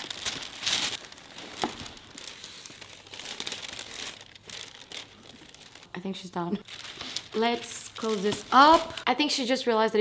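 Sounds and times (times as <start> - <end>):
paper packaging crinkling: 0.0 - 9.0.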